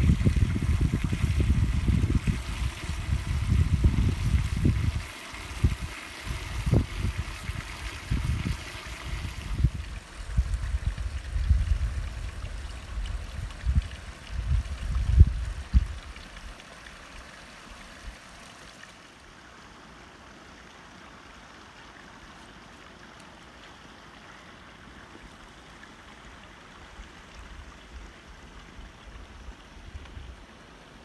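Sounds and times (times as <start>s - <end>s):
wind buffeting microphone: 0.0s - 16.3s
water trickling into wooden trough: 0.0s - 19.1s.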